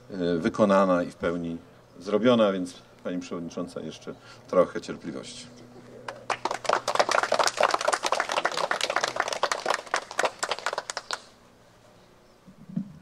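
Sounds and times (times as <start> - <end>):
people applauding: 6.1 - 11.4.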